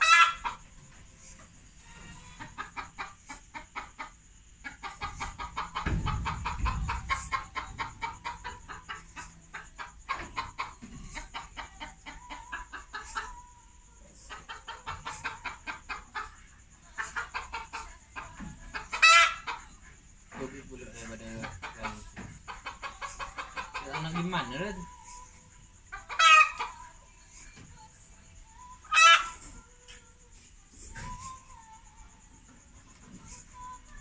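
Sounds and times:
chicken squawk: 0.0 - 0.7, 14.2 - 19.7, 25.9 - 26.9, 28.8 - 29.5
chickens clucking: 0.0 - 34.0.

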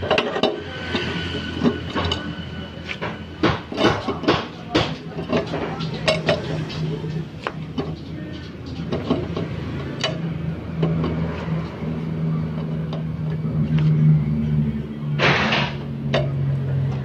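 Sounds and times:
metal clicks and taps: 7.4 - 11.2.

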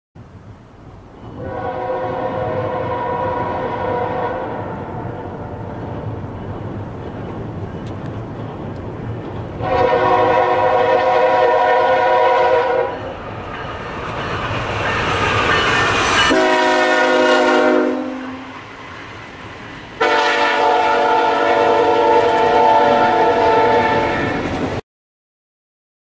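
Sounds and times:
train rumble: 0.2 - 24.8
train air horn blasts: 1.4 - 5.7, 9.6 - 13.2, 16.2 - 18.6, 20.0 - 24.5.

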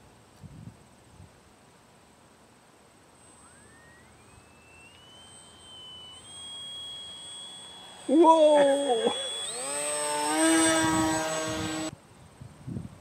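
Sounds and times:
model plane motor whining: 3.1 - 11.9.

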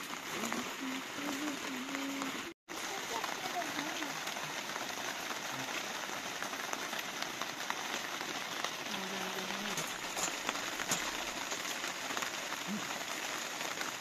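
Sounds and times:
rain pattering: 0.0 - 14.0
low hum of a voice: 0.4 - 2.5.

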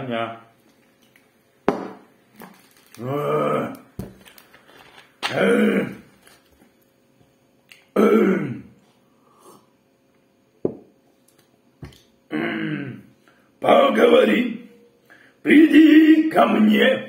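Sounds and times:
man grunting: 3.0 - 3.8, 5.3 - 6.1, 12.3 - 13.0.

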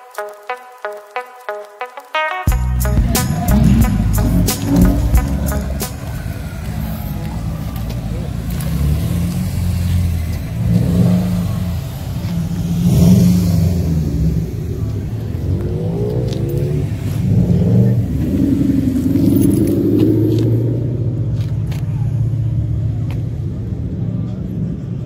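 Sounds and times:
car engines rumbling: 2.5 - 25.0
engine revving: 2.8 - 21.6.

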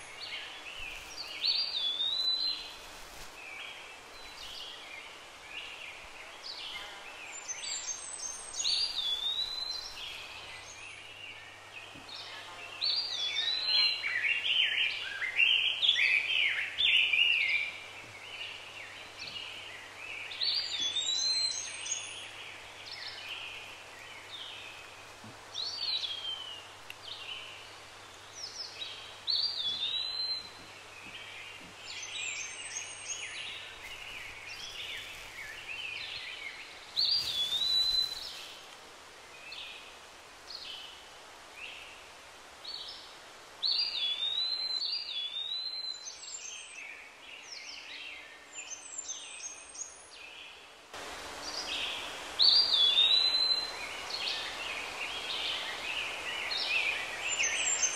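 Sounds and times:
birds chirping and whistling: 0.0 - 2.8, 29.3 - 30.6, 31.9 - 38.5, 51.5 - 57.9
background hiss: 0.0 - 57.9.

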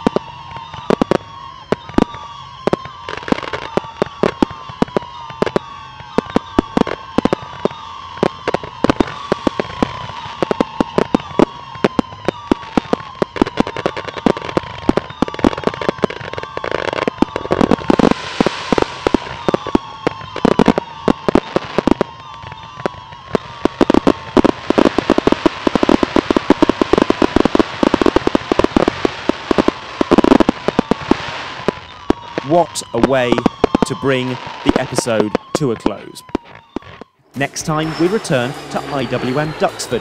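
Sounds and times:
fireworks crackling and popping: 0.0 - 40.0
aircraft engine drone: 17.9 - 21.0, 37.4 - 40.0.

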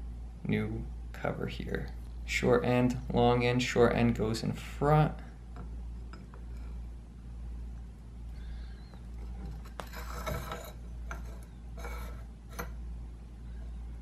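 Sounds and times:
steady low hum: 0.0 - 14.0
metal-on-metal scrape: 9.3 - 12.8.

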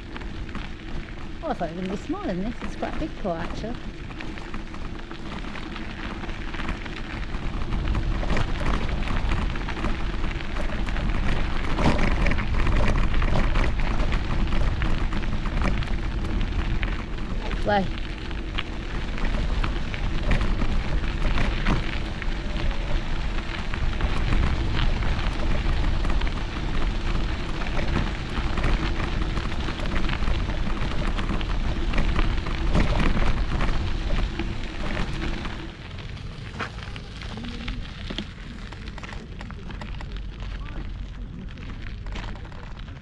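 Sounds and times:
bicycle tyres crunching on gravel: 0.0 - 43.0
wind rumbling on microphone: 0.0 - 43.0.

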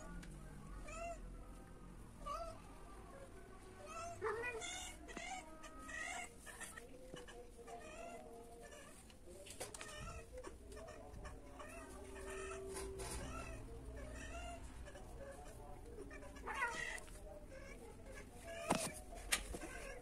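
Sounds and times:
cats yowling and meowing: 0.8 - 1.3, 2.2 - 2.6, 3.8 - 9.0, 9.8 - 15.5, 16.1 - 18.8.

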